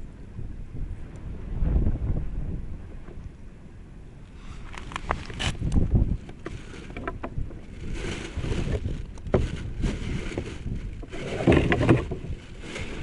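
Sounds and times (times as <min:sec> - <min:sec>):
wind rumbling on microphone: 0:00.0 - 0:13.0
fishing gear clicks and rustles: 0:04.6 - 0:13.0.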